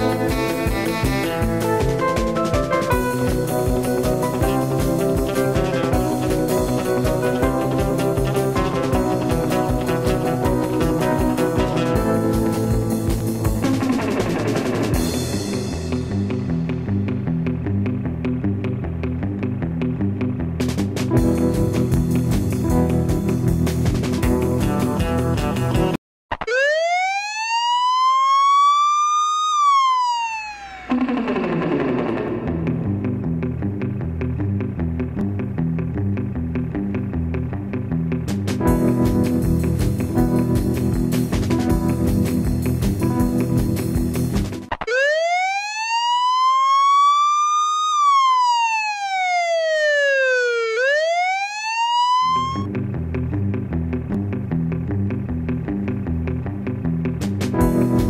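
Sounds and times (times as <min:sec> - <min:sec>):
siren wail: 0:26.3 - 0:31.9, 0:44.7 - 0:52.7.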